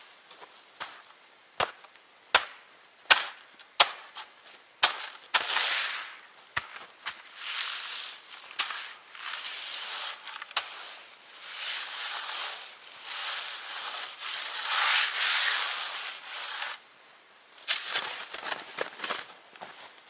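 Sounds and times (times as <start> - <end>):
footsteps crunching in snow: 4.1 - 16.8
snow shovel scraping snow: 4.9 - 6.2, 7.1 - 16.8.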